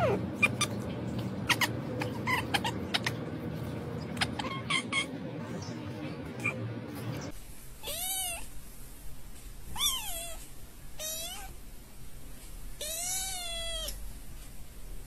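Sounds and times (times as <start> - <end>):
kitten meowing: 7.8 - 8.5, 9.7 - 10.4, 11.0 - 11.5, 12.8 - 14.0.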